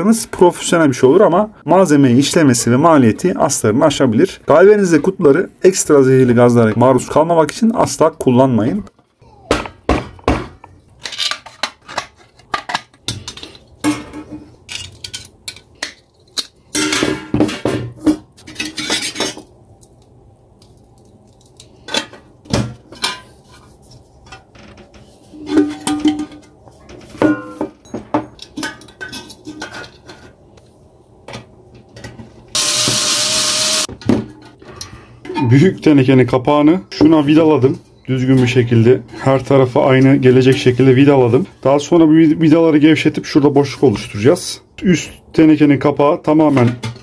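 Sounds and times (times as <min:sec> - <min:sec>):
sheet metal clanking and scraping: 0:24.2 - 0:30.4.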